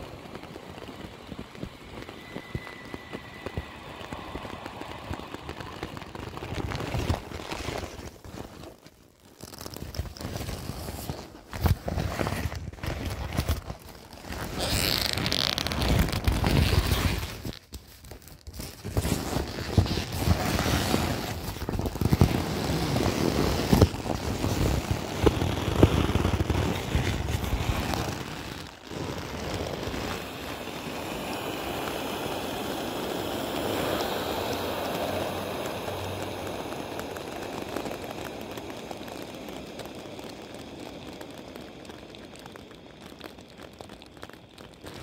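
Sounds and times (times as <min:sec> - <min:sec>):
vinyl crinkling and scraping: 0:00.0 - 0:32.9, 0:33.6 - 0:45.0.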